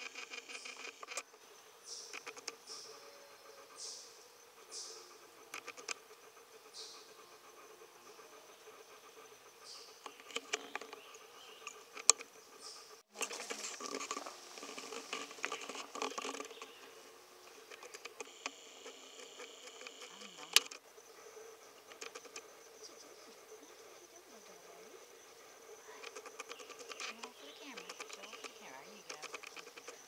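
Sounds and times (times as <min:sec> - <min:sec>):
sharp clicks: 0:05.5 - 0:06.1, 0:17.5 - 0:20.8, 0:26.0 - 0:30.0.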